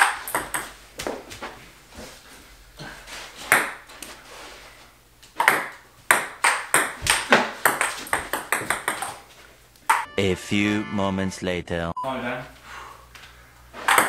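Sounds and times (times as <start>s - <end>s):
table tennis ball bouncing on table: 0.0s - 0.7s, 3.5s - 3.8s, 5.4s - 9.2s, 9.9s - 10.1s
table tennis ball clicking off paddles: 5.3s - 9.2s.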